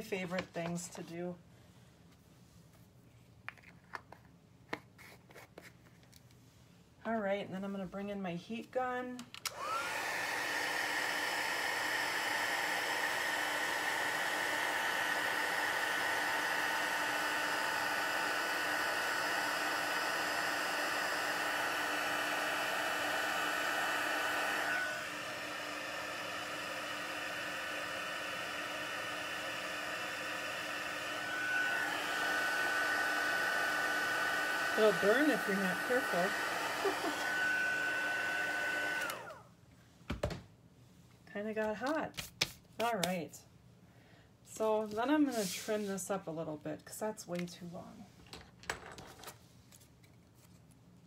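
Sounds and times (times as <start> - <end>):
heat gun blowing with whine: 9.5 - 39.5.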